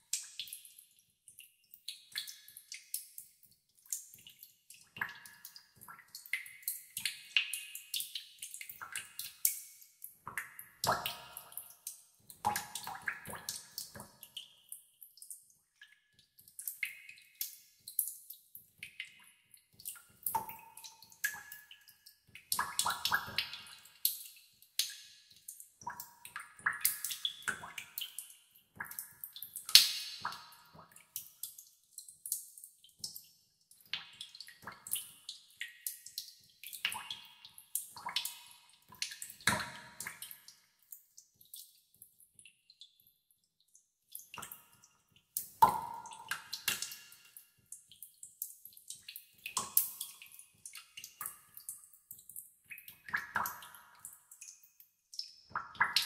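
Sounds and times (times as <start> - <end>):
water drops echoing in a cave: 0.0 - 56.0.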